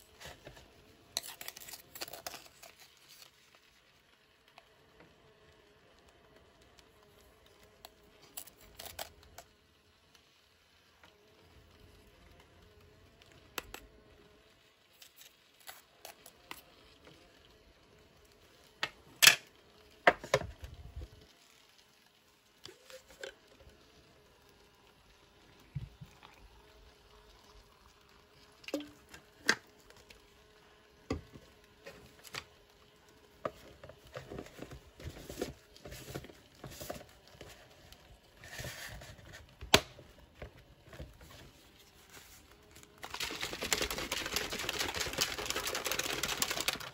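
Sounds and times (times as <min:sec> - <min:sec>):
water pouring into cup: 0:25.1 - 0:30.4.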